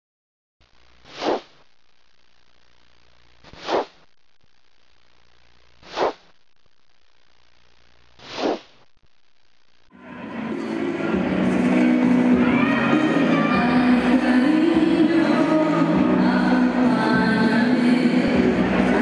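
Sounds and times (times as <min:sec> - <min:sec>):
faint steady hum: 0:00.6 - 0:10.0
whoosh sound effects: 0:01.1 - 0:01.6, 0:03.5 - 0:04.1, 0:05.8 - 0:06.3, 0:08.2 - 0:08.8.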